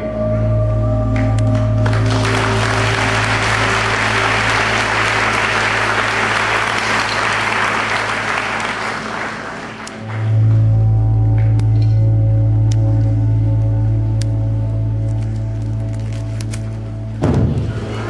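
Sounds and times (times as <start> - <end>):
slow background music: 0.0 - 18.0
audience applause: 1.5 - 10.4.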